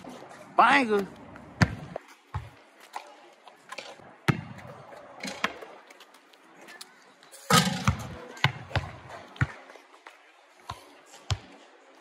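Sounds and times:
basketball bouncing: 0:01.6 - 0:02.6, 0:04.3 - 0:04.8, 0:07.5 - 0:09.6.

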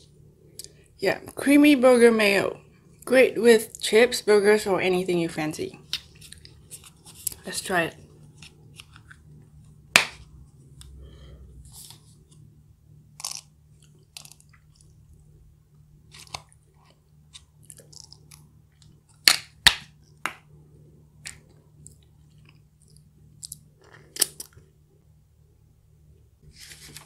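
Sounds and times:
crunching and chewing food: 0:13.1 - 0:15.1, 0:16.0 - 0:19.2, 0:21.3 - 0:24.7.

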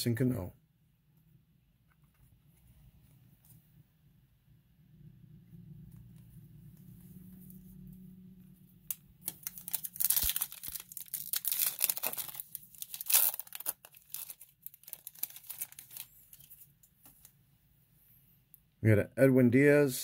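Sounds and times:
foil wrapper tearing and crinkling: 0:08.9 - 0:16.7.

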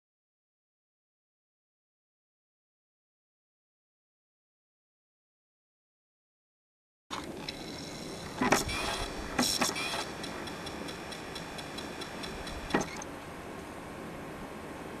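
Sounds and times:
fast even ticking: 0:08.0 - 0:13.0.

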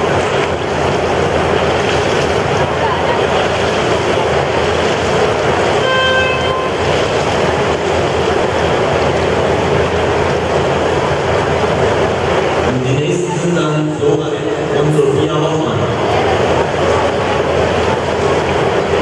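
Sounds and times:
short horn toot: 0:05.8 - 0:06.8.

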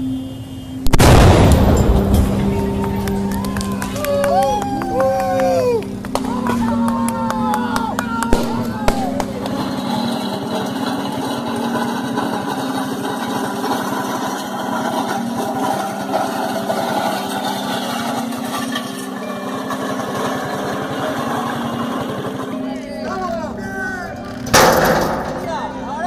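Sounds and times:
small engine running: 0:09.3 - 0:23.3.

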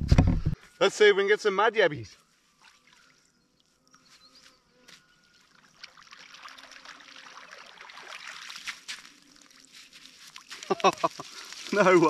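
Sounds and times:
water swishing through net mesh: 0:05.6 - 0:12.0.

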